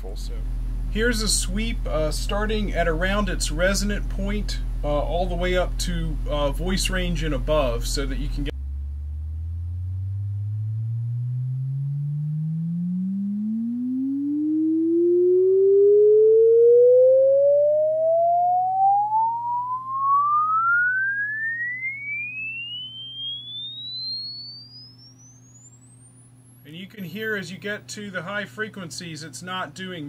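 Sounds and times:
faint steady hum: 0:00.0 - 0:30.0
rising sine tone sweep: 0:06.8 - 0:27.2.

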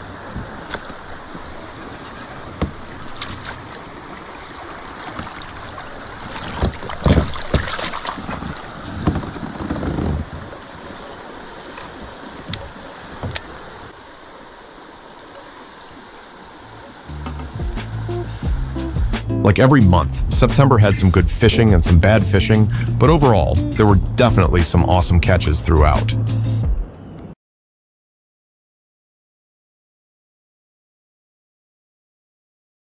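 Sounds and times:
water lapping: 0:00.0 - 0:26.1
fish splashing and thrashing: 0:02.2 - 0:13.9.

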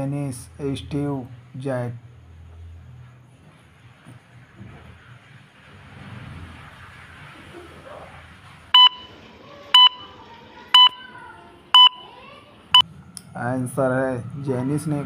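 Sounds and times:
two-tone electronic beeps: 0:08.8 - 0:09.2, 0:09.8 - 0:10.1, 0:10.8 - 0:11.0, 0:11.8 - 0:12.0.

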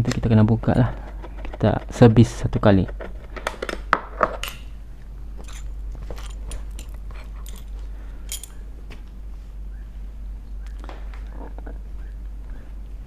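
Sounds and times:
steady low hum: 0:00.0 - 0:13.0
screwdriver clicking and scraping: 0:00.7 - 0:03.8, 0:05.4 - 0:08.5
small metal parts handled: 0:05.4 - 0:08.6.

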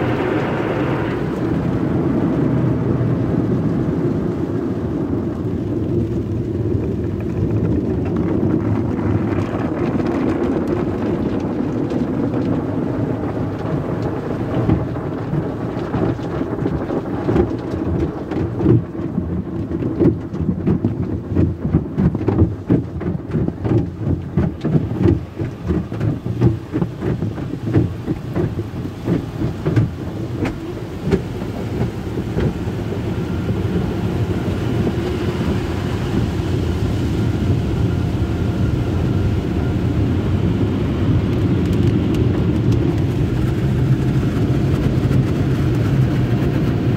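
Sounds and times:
water spraying on car: 0:00.0 - 0:46.9
thumps against car: 0:17.3 - 0:33.0.

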